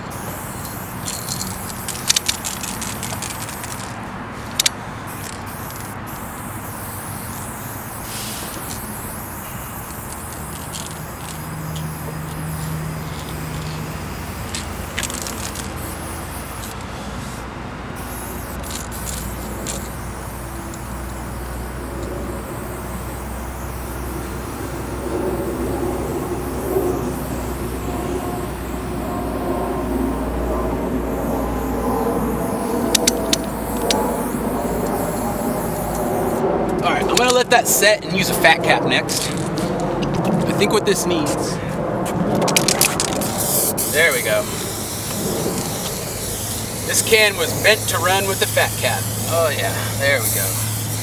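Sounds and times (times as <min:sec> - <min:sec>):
spray paint can hissing: 0:00.0 - 0:41.4, 0:42.1 - 0:51.0
low traffic rumble: 0:00.0 - 0:51.0.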